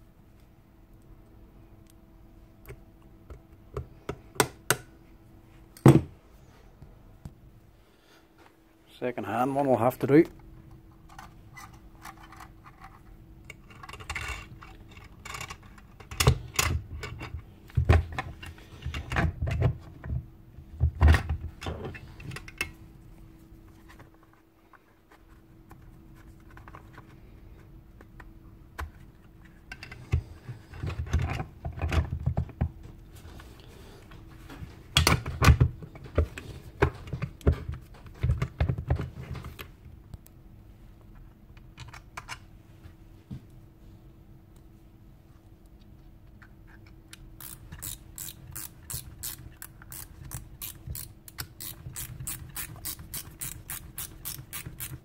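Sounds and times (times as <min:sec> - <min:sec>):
faint steady hum: 0:00.0 - 0:55.0
knocks clunks and scrapes of metal parts: 0:11.1 - 0:22.8.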